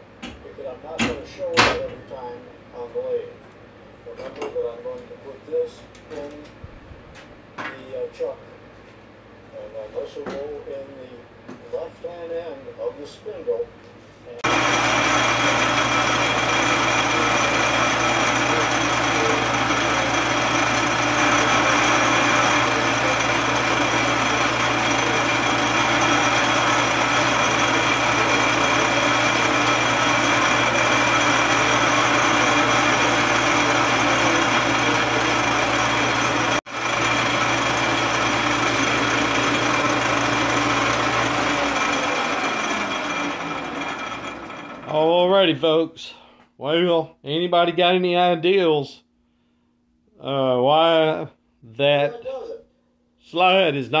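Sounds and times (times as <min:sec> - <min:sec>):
metal lathe humming and whining: 0:14.4 - 0:45.1.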